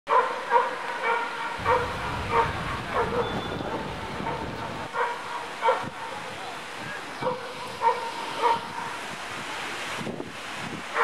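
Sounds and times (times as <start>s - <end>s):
dog barking: 0.1s - 6.2s, 7.2s - 9.0s.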